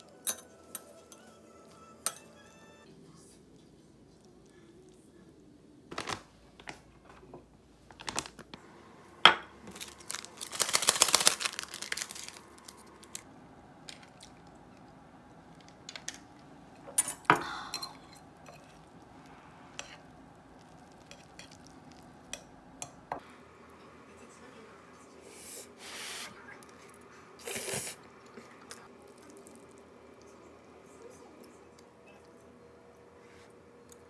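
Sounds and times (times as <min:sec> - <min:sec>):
plastic sachet crinkling and tearing: 0:07.9 - 0:08.6, 0:09.7 - 0:13.2.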